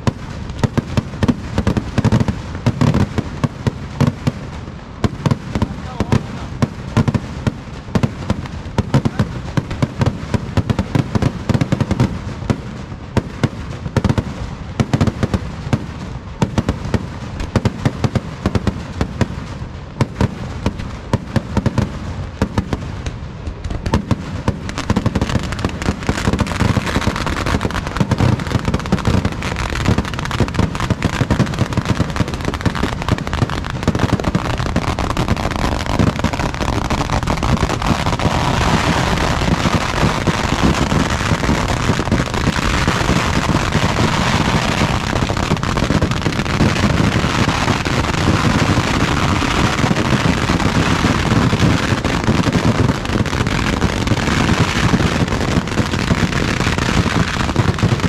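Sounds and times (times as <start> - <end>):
fireworks bangs and crackling: 0.0 - 58.0.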